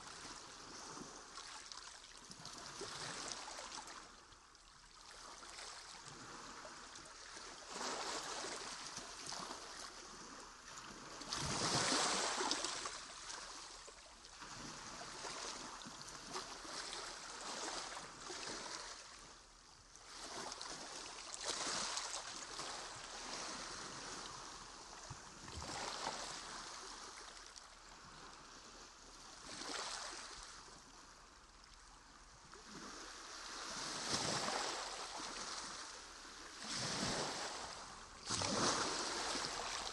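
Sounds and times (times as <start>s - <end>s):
water sloshing around kayaks: 32.6s - 39.9s.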